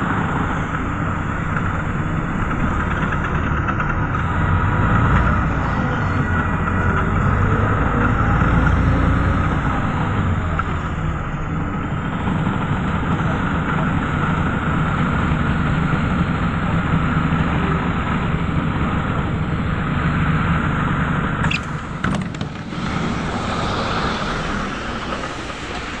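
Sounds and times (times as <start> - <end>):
bus diesel engine running: 0.0 - 26.0
hiss: 22.6 - 26.0.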